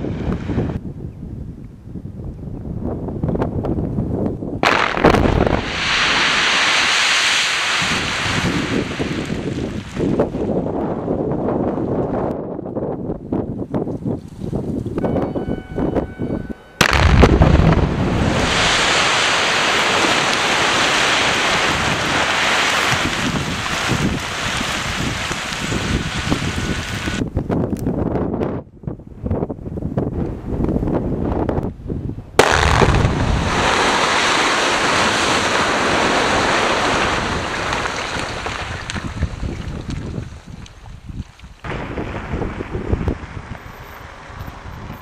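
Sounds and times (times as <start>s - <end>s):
wind buffeting microphone: 0.0s - 45.0s
loud explosion: 4.6s - 10.3s, 16.8s - 27.2s, 32.4s - 39.4s, 41.6s - 45.0s
rock face collapsing rushing: 4.6s - 10.6s, 16.8s - 27.2s, 32.4s - 45.0s.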